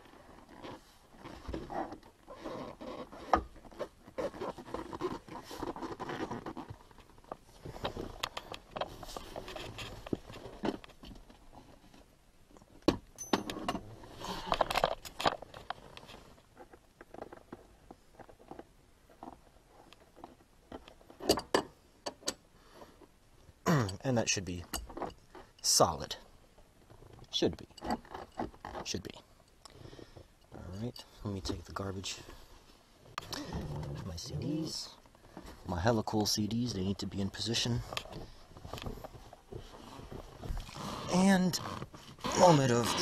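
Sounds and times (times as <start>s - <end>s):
hands rustling and scraping trim: 0.0s - 12.1s, 26.9s - 43.0s.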